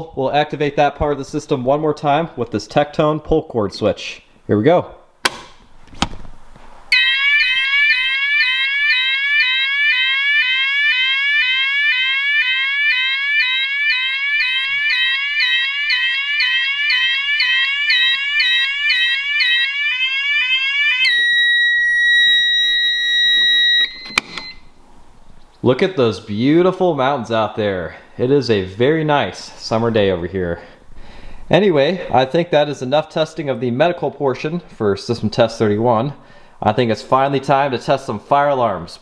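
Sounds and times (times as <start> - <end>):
alarm sounder tone: 6.9 - 24.7.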